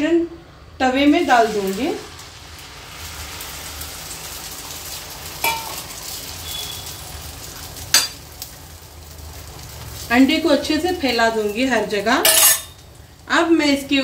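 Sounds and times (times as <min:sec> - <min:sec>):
egg sizzling in hot oil: 0:01.1 - 0:13.3
steel spoon clinking against pan: 0:05.4 - 0:05.8, 0:08.0 - 0:08.2, 0:12.2 - 0:12.8.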